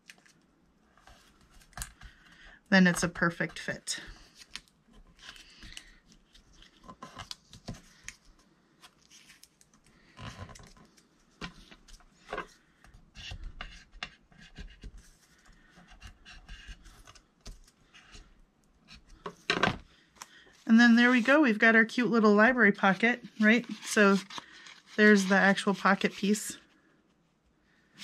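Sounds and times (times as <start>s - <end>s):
paper rustling and folding: 0.0s - 18.3s, 22.9s - 26.9s.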